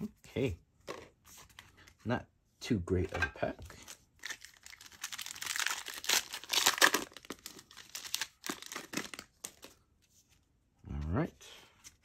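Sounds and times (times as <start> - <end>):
foil wrapper crinkling and tearing: 4.2 - 9.7.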